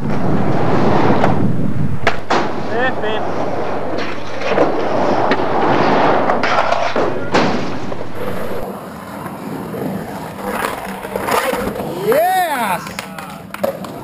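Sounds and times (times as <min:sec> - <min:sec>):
sharp thuds: 0:00.0 - 0:02.8, 0:03.9 - 0:08.7.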